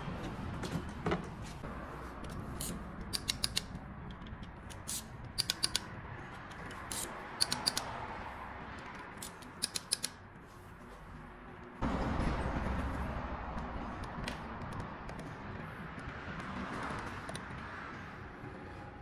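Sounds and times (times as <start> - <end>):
ratchet wrench clicking: 2.3 - 5.9, 6.5 - 7.9, 9.2 - 10.2.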